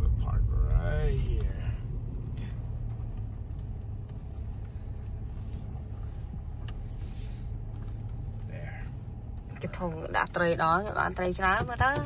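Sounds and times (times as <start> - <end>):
car engine and tyres rumbling: 0.0 - 12.0.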